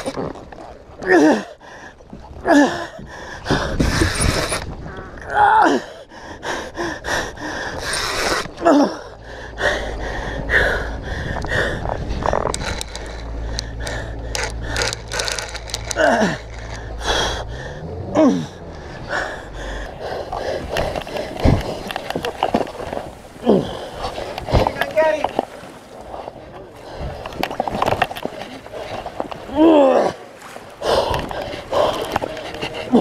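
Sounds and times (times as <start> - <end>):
man gasping and groaning: 5.1 - 7.3, 13.6 - 21.8, 23.4 - 24.9, 29.4 - 33.0
low rumble: 6.1 - 33.0.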